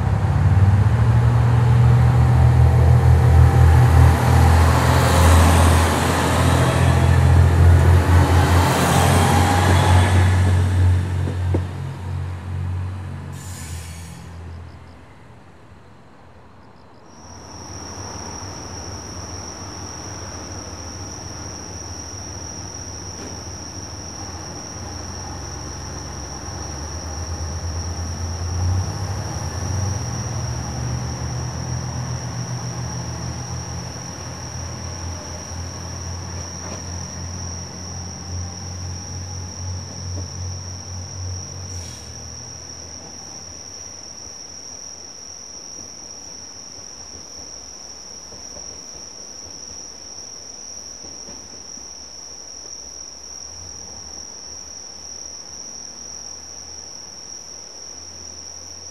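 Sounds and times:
diesel railcar engine hum: 0:00.0 - 0:58.9
crickets chirring: 0:16.5 - 0:58.9.

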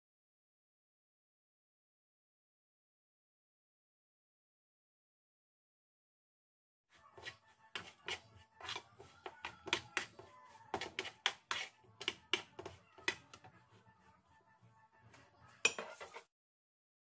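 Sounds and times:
metal utensil scraping frying pan: 0:07.0 - 0:13.4, 0:15.6 - 0:16.3.

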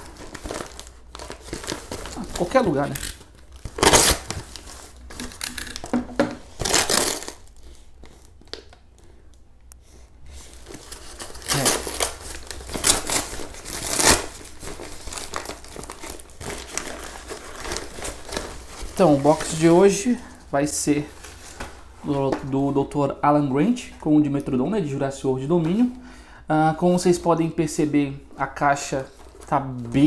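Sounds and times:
paper tearing and crinkling: 0:00.0 - 0:05.9, 0:06.5 - 0:07.6, 0:10.4 - 0:19.9.

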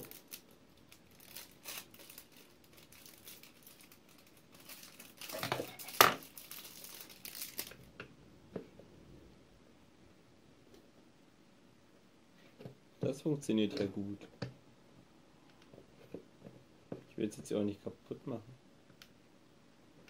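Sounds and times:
plastic wrapping crinkling: 0:00.0 - 0:07.9.

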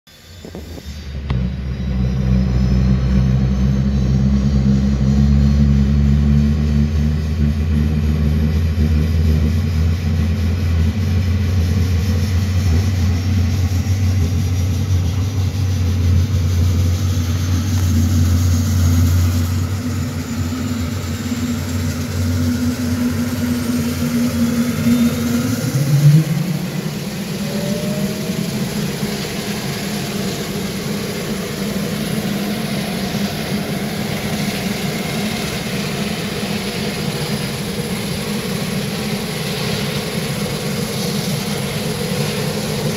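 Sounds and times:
high engine whine: 0:00.1 - 0:42.9
turboprop engines starting up: 0:00.1 - 0:42.9
brief rising note: 0:12.2 - 0:29.6.

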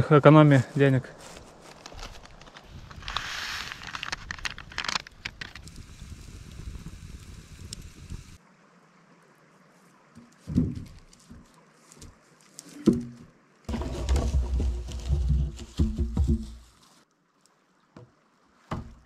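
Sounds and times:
rustling: 0:00.6 - 0:06.2, 0:10.3 - 0:17.0
footsteps in dry grass: 0:00.7 - 0:06.0, 0:10.8 - 0:12.9, 0:13.7 - 0:17.0
thuds: 0:12.8 - 0:16.7.

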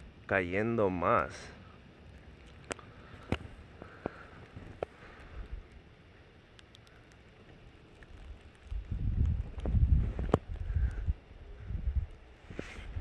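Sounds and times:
faint sharp clicks: 0:02.4 - 0:05.8, 0:06.5 - 0:11.0.

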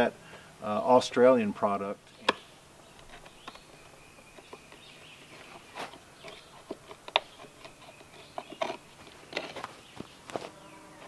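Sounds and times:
chisel cutting wood: 0:04.3 - 0:09.7.

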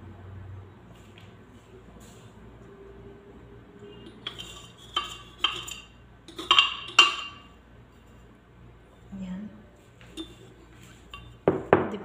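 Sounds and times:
spoon clinking against container: 0:04.0 - 0:07.5, 0:10.1 - 0:10.5.

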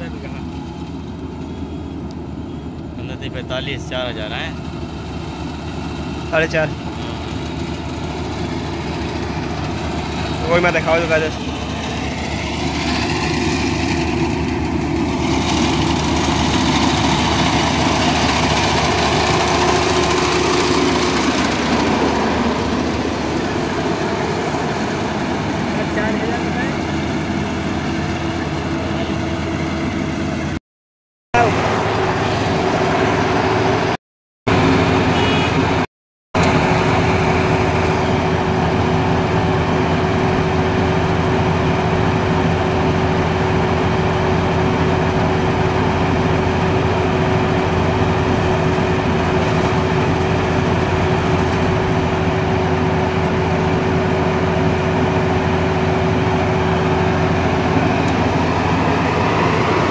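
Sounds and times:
combine harvester running: 0:00.0 - 0:30.6, 0:31.4 - 0:35.8, 0:36.4 - 0:59.9
steady machine whine: 0:36.4 - 0:59.9.

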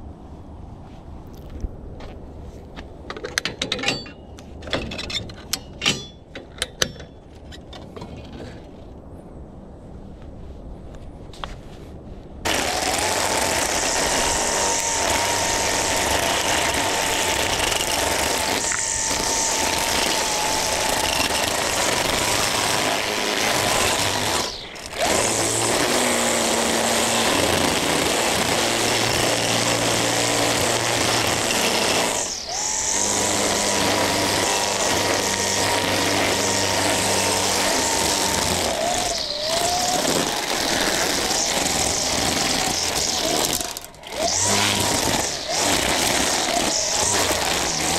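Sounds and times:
string trimmer whining: 0:12.5 - 0:47.9
trimmer line whipping through grass: 0:12.5 - 0:47.9.

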